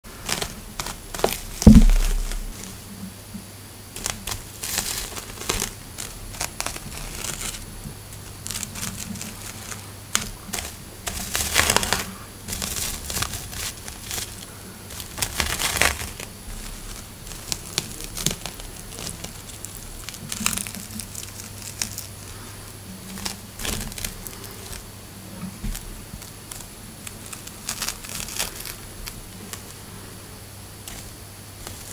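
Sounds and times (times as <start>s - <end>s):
crinkling rustles of spider silk: 0.0s - 3.1s, 3.8s - 31.9s
faint steady hum: 0.0s - 31.9s
sharp thump: 1.6s - 2.6s.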